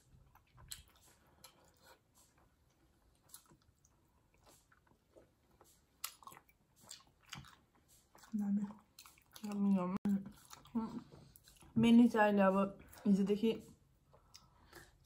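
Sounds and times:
people chewing: 0.0 - 15.0.

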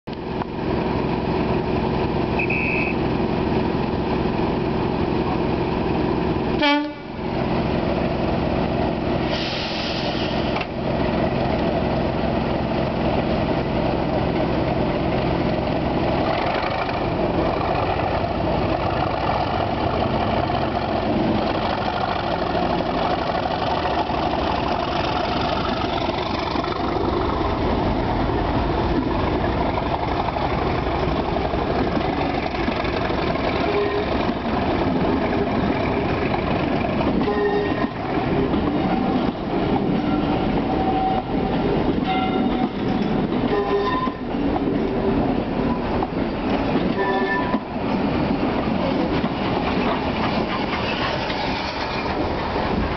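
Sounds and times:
diesel locomotive engine running: 0.1 - 52.9
hiss: 9.2 - 10.6.

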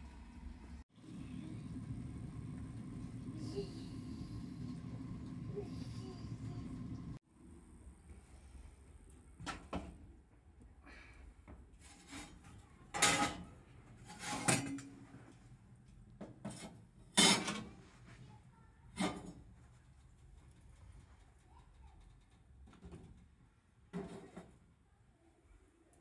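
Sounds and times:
metal stove and pots clanking: 11.8 - 15.2, 16.2 - 17.8, 19.0 - 19.4.

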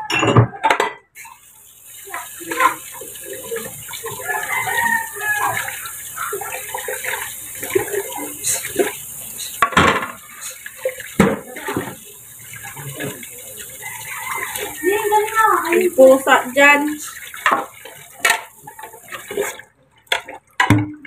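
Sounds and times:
dishes and utensils clattering: 0.0 - 1.4, 9.5 - 12.0
water running from tap: 1.2 - 20.8.

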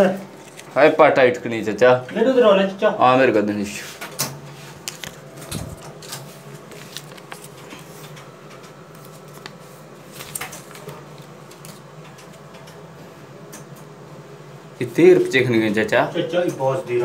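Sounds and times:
low machine hum: 0.0 - 17.0
paper receipt handling: 0.3 - 0.9, 4.6 - 12.7.

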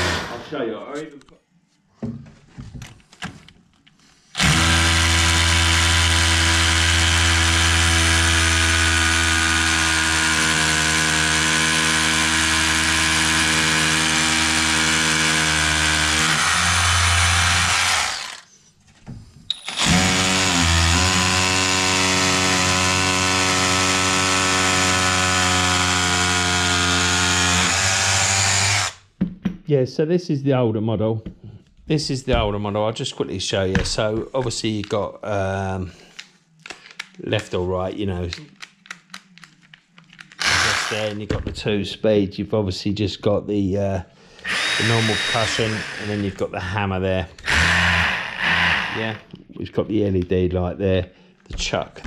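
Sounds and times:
hammer drill boring into concrete: 0.0 - 0.5, 4.4 - 18.5, 19.5 - 29.0, 40.4 - 41.2, 44.4 - 46.8, 47.4 - 49.3.

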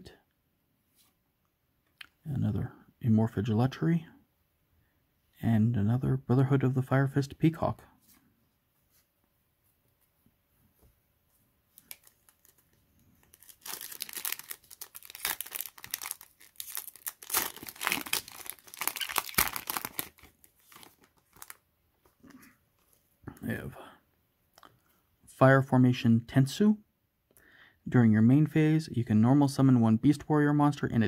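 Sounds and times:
foil wrapper crinkling and tearing: 11.7 - 21.6.

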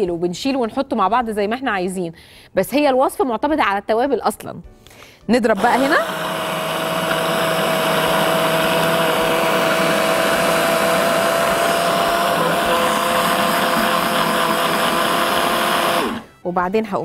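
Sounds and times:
food processor motor running: 5.6 - 16.3.

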